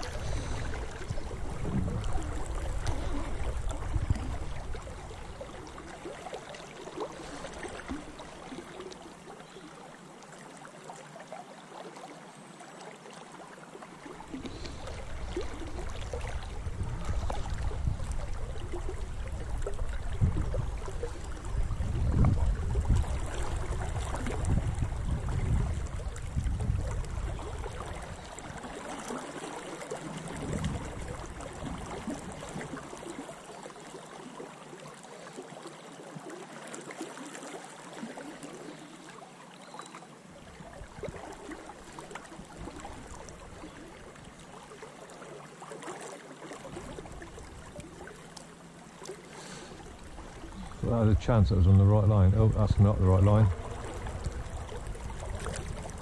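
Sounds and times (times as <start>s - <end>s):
river water rushing: 0.0s - 12.0s, 27.2s - 52.4s, 53.0s - 56.0s.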